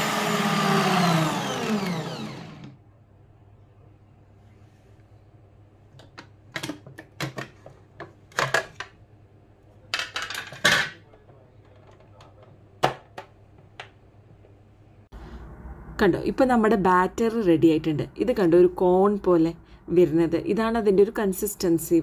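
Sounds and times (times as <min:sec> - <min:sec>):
faint hum: 0:14.0 - 0:22.0.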